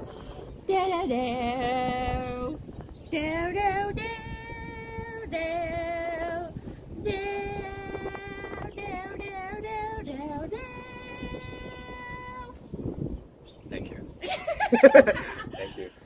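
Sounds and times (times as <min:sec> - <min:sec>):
woman singing with vibrato: 0:00.0 - 0:12.6.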